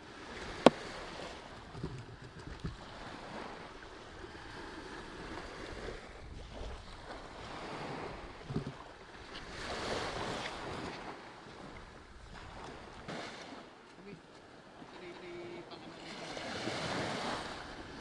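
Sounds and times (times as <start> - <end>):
wind rumbling on microphone: 0.0 - 13.1
small waves breaking on beach: 0.0 - 18.0.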